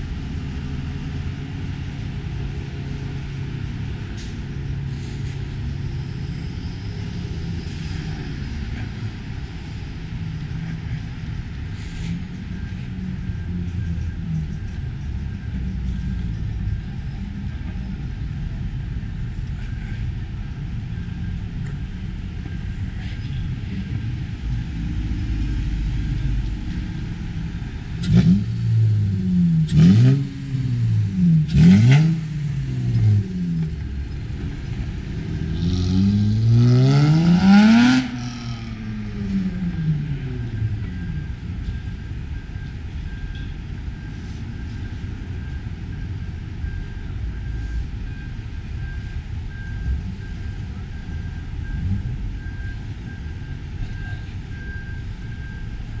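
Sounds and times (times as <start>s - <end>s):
traffic hum: 0.0s - 56.0s
faint beeping: 5.9s - 56.0s
cars driving past: 21.3s - 56.0s.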